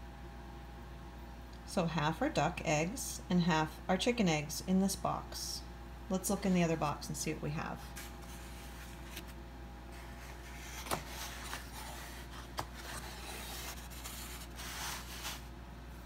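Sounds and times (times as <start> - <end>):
cardboard cartons scraping: 7.8 - 15.5.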